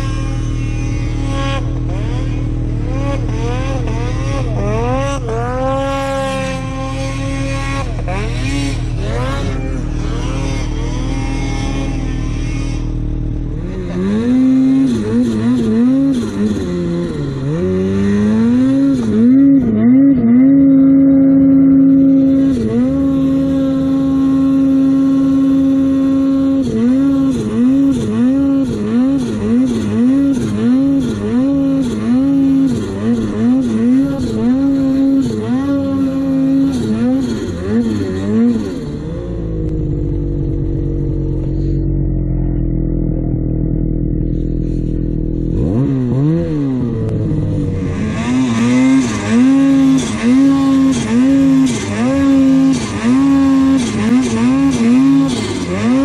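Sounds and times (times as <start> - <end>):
snowmobile engine revving: 0.0 - 56.0.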